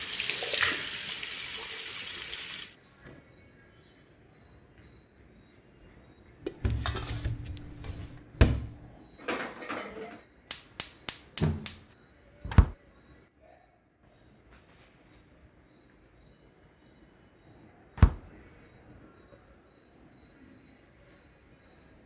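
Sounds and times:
pots and pans clattering: 6.5 - 10.3
heavy thump: 6.6 - 8.9.

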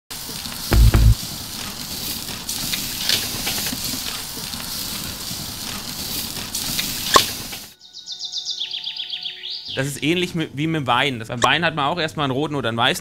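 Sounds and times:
low thump: 0.7 - 1.2.

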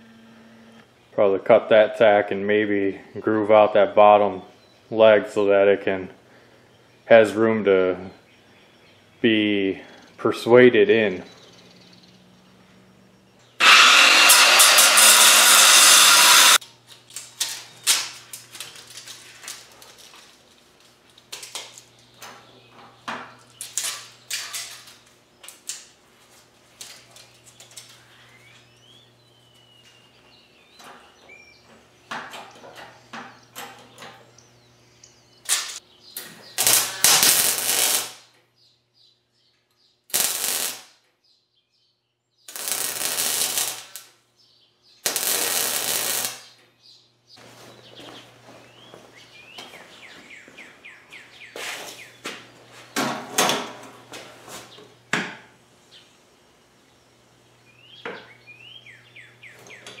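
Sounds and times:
welding arc crackling: 13.6 - 16.6, 36.5 - 38.3, 40.1 - 40.9, 42.5 - 44.1, 45.0 - 46.5.

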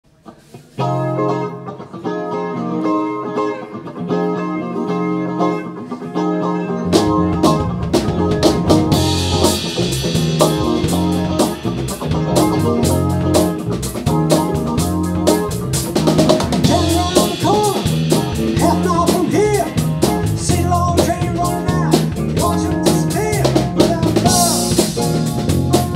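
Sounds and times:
electric guitar riff: 0.2 - 25.9
bass guitar: 0.4 - 25.9
drum kit: 6.8 - 25.9.

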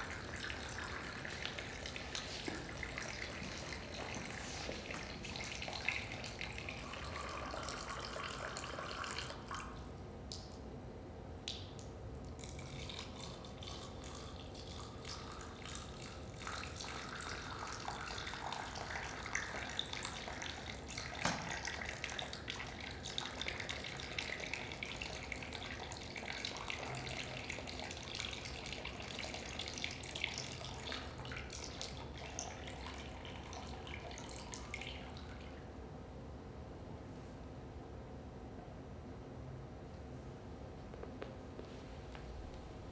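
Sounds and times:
water pouring into glasses: 0.0 - 9.9, 12.3 - 35.5.

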